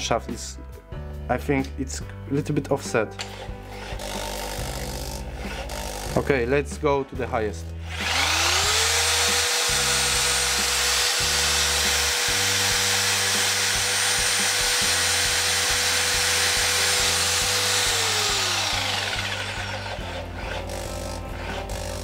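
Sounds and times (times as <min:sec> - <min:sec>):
background music: 0:00.0 - 0:22.0
hammer drill motor whine: 0:07.8 - 0:22.0.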